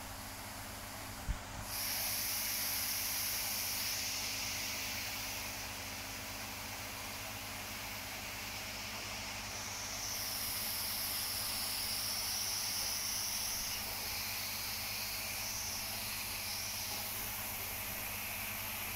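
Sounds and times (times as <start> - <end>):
steady hiss: 0.0 - 18.9.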